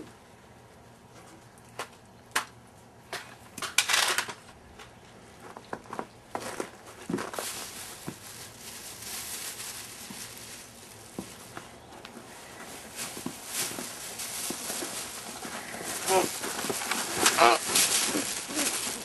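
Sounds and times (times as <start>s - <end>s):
crinkling rustle: 3.8s - 19.0s
footsteps: 5.4s - 19.0s.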